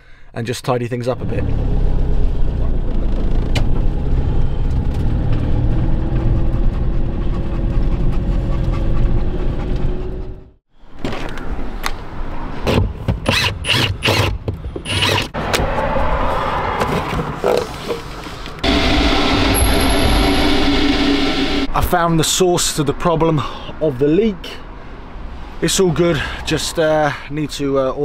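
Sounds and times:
van engine and road rumble: 0:01.1 - 0:13.7.

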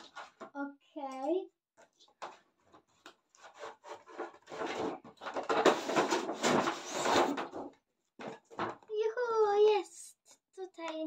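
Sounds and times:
cardboard rustling: 0:01.9 - 0:08.8
cardboard scraping and rubbing: 0:02.3 - 0:07.7.

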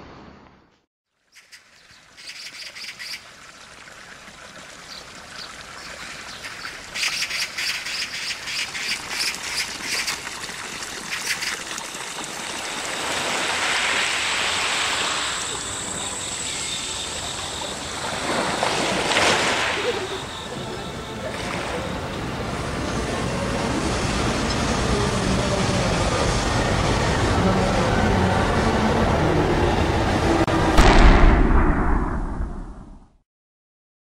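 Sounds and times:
bird chirps: 0:01.3 - 0:03.2, 0:04.9 - 0:10.2.

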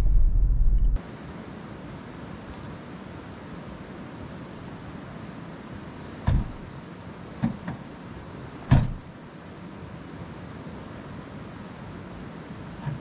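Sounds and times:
steady background hiss: 0:01.0 - 0:13.0
thumps on a car: 0:06.3 - 0:06.7, 0:08.7 - 0:09.0.

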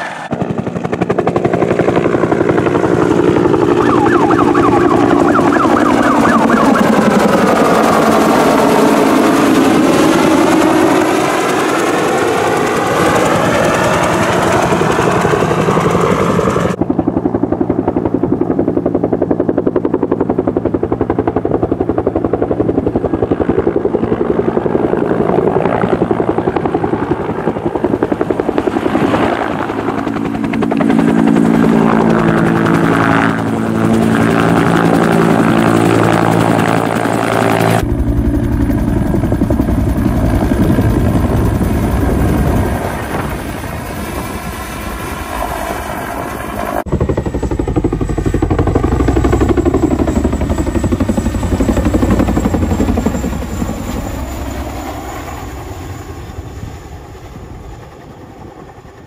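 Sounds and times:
helicopter engine hum: 0:00.0 - 0:59.0
helicopter rotor thumping: 0:00.2 - 0:54.9.

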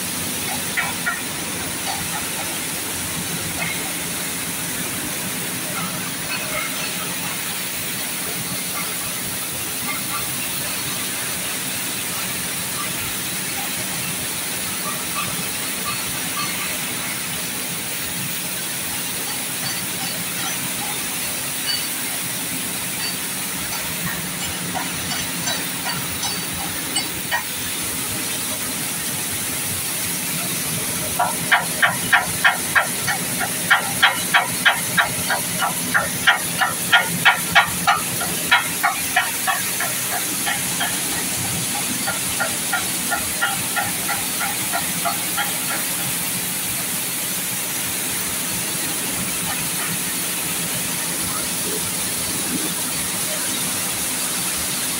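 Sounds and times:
wheat-washing machinery rushing hiss: 0:00.0 - 0:54.9.

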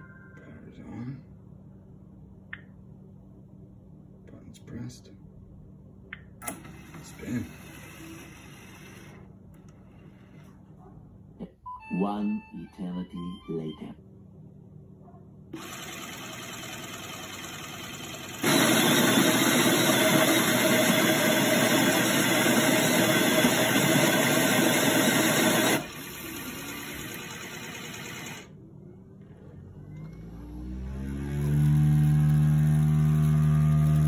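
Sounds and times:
coffee maker motor: 0:06.4 - 0:10.6, 0:15.6 - 0:28.5, 0:29.8 - 0:34.0
rising whine: 0:29.6 - 0:34.0.

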